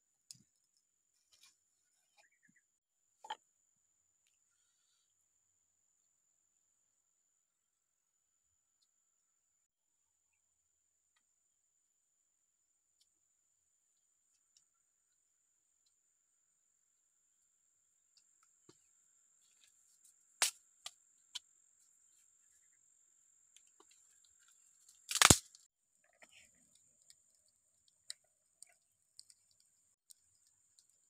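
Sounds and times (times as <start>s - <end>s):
bamboo sticks clicking and knocking: 23.6s - 25.7s, 26.6s - 31.0s.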